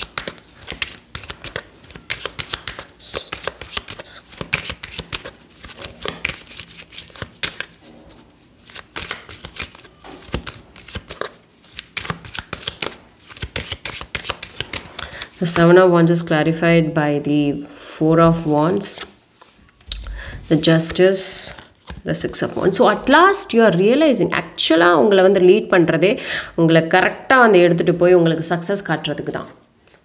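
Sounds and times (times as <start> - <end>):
cards being shuffled: 0.0 - 15.6.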